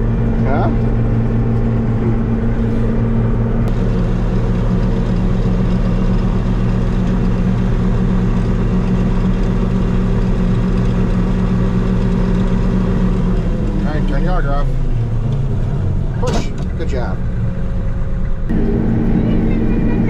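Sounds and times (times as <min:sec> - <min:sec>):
combine engine running: 0:00.0 - 0:20.0.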